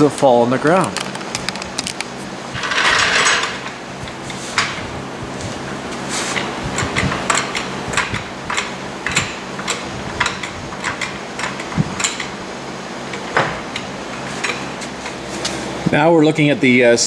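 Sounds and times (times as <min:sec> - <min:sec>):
floor jack clicking and clanking: 0:02.6 - 0:03.8.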